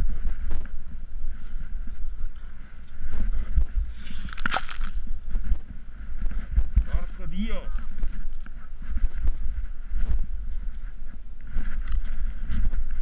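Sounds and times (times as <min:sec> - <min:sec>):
low rumbling wind: 0:00.0 - 0:13.0
powder snow crunching: 0:03.9 - 0:05.3, 0:06.8 - 0:08.4
camera handling noise: 0:04.0 - 0:05.2.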